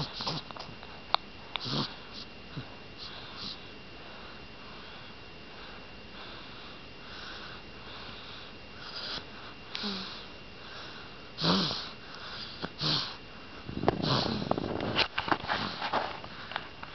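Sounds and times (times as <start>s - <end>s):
baby grunting: 0.0s - 0.5s, 1.6s - 1.9s, 11.4s - 11.9s, 12.6s - 13.2s, 14.0s - 14.5s
baby breathing and sniffing: 0.0s - 0.6s, 3.0s - 13.2s, 13.9s - 14.7s, 15.4s - 16.6s.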